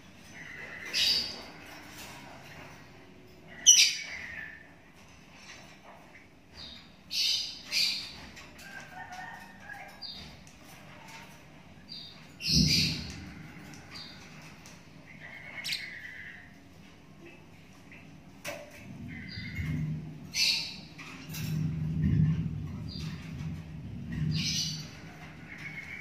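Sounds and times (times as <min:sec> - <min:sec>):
bird chick chirping and squawking: 0:00.2 - 0:05.1, 0:06.5 - 0:16.9, 0:17.5 - 0:23.4.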